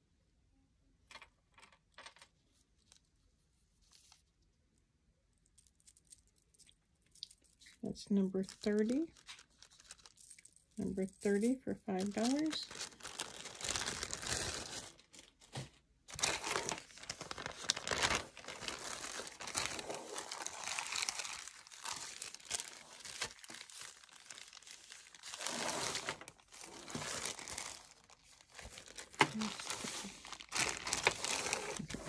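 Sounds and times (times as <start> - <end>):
plastic bags crinkling: 7.2 - 32.0.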